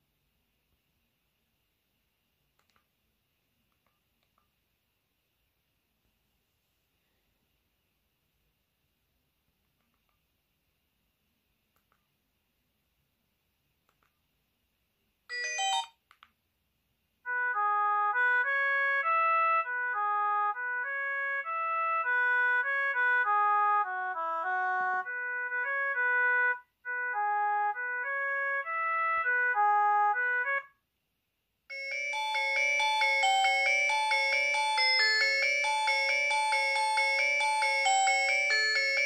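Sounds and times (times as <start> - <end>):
brief phone tone: 15.3 - 16.0
polyphonic phone ringtone: 15.3 - 16.0, 31.7 - 39.0.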